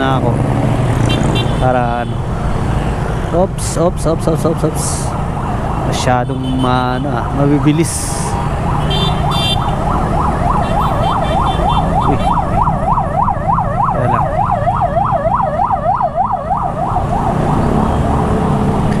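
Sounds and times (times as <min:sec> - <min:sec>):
yelp siren wailing: 0:07.0 - 0:18.8.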